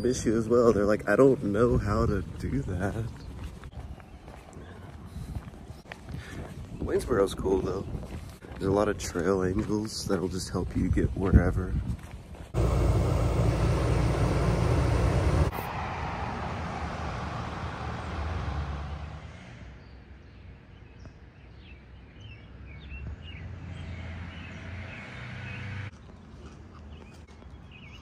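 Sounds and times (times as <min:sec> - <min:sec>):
small birds chirping: 0:00.0 - 0:11.1, 0:19.8 - 0:28.0
background hum: 0:12.0 - 0:20.0
loud steady rush of noise: 0:12.6 - 0:19.4.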